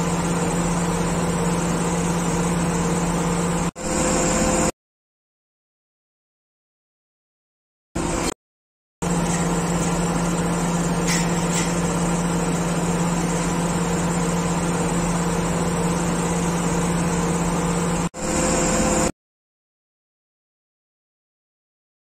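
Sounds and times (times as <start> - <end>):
crane diesel engine running: 0.0 - 4.7, 8.0 - 8.3, 9.0 - 19.1.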